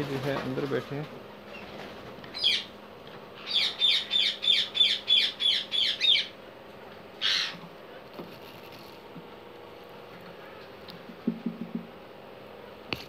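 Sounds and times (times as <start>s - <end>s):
parakeet harsh high calls: 2.3s - 2.8s, 3.4s - 6.4s, 7.2s - 7.6s.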